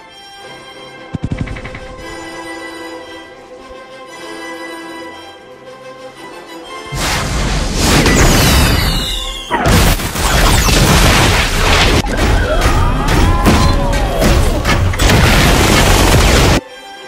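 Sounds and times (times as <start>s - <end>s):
music: 0.0s - 17.0s
booms and crashes: 7.0s - 16.6s.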